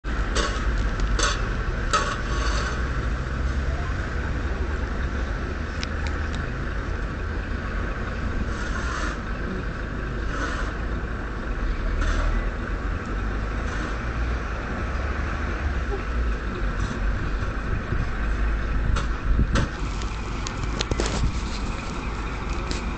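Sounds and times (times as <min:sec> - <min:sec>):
vehicle engine rumbling: 0:00.0 - 0:22.9
wind noise on microphone: 0:05.6 - 0:09.4, 0:15.7 - 0:22.9
microphone handling rustle: 0:19.6 - 0:22.9.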